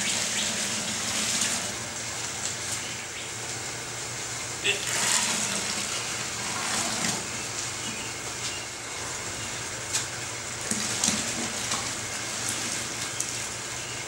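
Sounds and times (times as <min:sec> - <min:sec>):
water pouring from a pitcher: 0:00.0 - 0:02.6, 0:04.7 - 0:07.7, 0:10.6 - 0:13.6.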